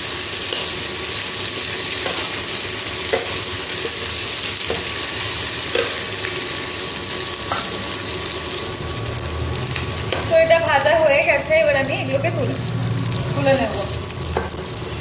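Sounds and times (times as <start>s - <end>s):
food sizzling in oil: 0.0s - 15.0s
spatula tapping pan: 3.1s - 4.0s.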